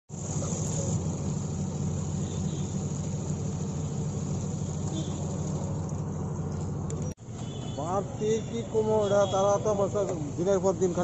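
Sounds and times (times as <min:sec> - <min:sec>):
motor running with low drone: 0:00.1 - 0:07.0.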